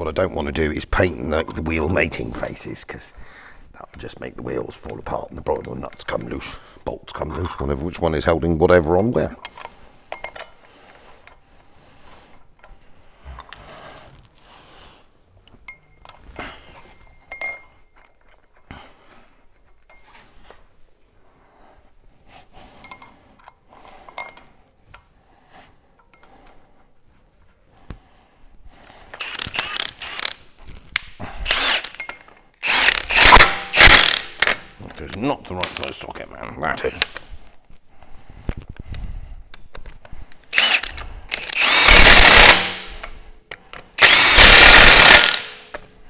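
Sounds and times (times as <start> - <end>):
metal parts clinking: 9.0 - 10.6, 31.5 - 34.7, 35.6 - 36.2, 40.5 - 43.2, 44.0 - 45.8
cordless power tool bursts: 29.2 - 30.4, 31.4 - 32.0, 32.6 - 34.6, 40.5 - 43.0, 44.0 - 45.7.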